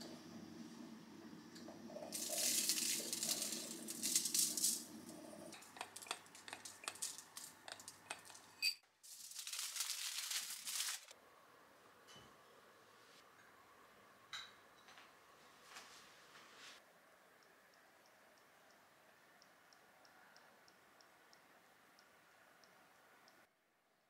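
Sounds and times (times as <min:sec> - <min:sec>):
sugar sprinkling rustle: 0:02.1 - 0:04.9, 0:06.3 - 0:08.4, 0:09.0 - 0:11.1
foil crinkling: 0:02.2 - 0:04.8, 0:06.6 - 0:07.5, 0:09.0 - 0:11.1.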